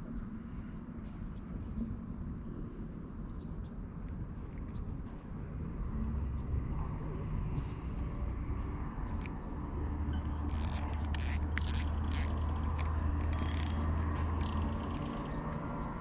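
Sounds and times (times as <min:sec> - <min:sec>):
short rasping bursts: 0:10.5 - 0:12.4, 0:13.3 - 0:13.8
fishing reel whirring: 0:10.5 - 0:13.8.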